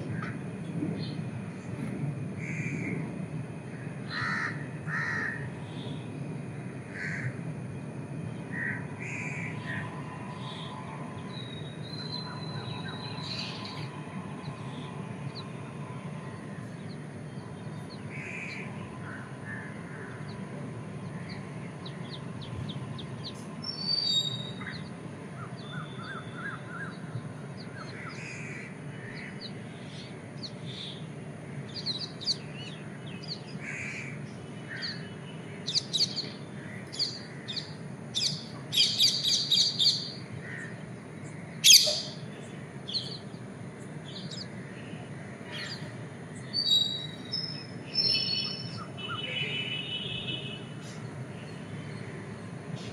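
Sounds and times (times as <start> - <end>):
low background rumble: 0.0 - 48.0
loud harsh bird call: 4.1 - 5.9, 21.1 - 43.3
birds chirping and calling: 8.4 - 52.9.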